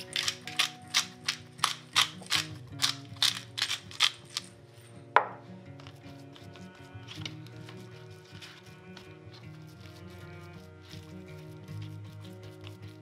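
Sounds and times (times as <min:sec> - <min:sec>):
pepper mill grinding: 0:00.0 - 0:04.6, 0:05.2 - 0:13.0
soft background music: 0:00.0 - 0:13.0.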